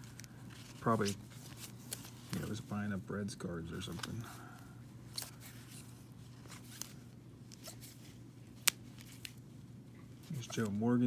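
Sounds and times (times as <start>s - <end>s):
cards sliding in plastic sleeves: 0.0s - 2.8s, 3.8s - 4.4s, 5.0s - 9.5s, 10.2s - 10.9s
steady low hum: 0.0s - 11.0s.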